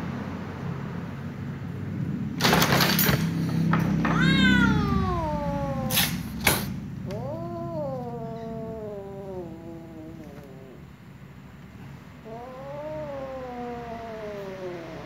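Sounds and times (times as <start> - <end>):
cat yowling: 4.0 - 11.0, 12.2 - 15.0
cat growling: 4.1 - 15.0
cat hissing: 4.1 - 15.0
cat spitting: 5.0 - 10.9.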